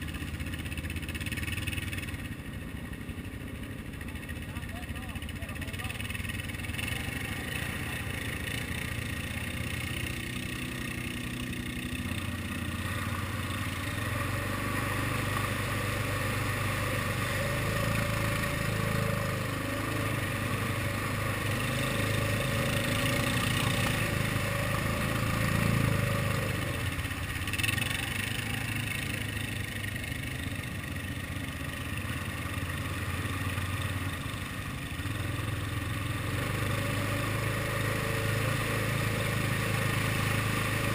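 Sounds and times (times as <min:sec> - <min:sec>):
quad engine running: 0:00.0 - 0:40.9.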